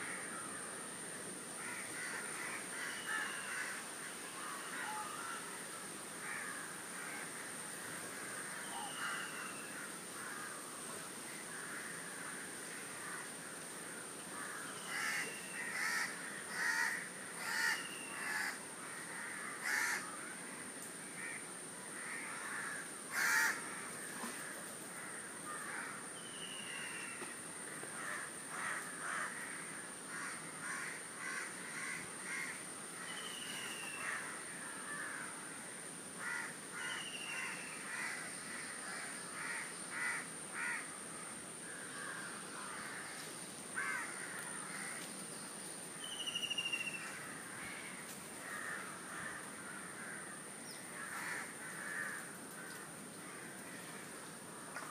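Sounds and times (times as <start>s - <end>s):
crows cawing: 1.6s - 20.6s, 21.2s - 26.1s, 26.8s - 33.1s, 34.0s - 40.9s, 41.6s - 45.1s, 46.8s - 54.9s.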